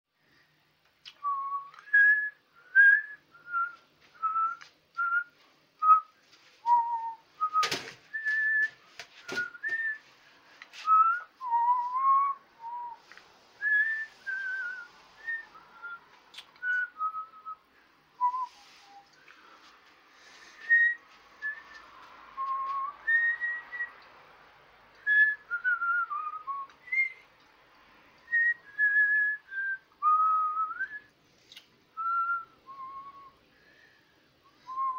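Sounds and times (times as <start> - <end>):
person whistling a slow tune: 1.1 - 10.0, 10.8 - 17.6, 18.2 - 19.2, 20.4 - 24.0, 25.0 - 27.2, 28.3 - 31.1, 32.0 - 33.4, 34.4 - 34.9.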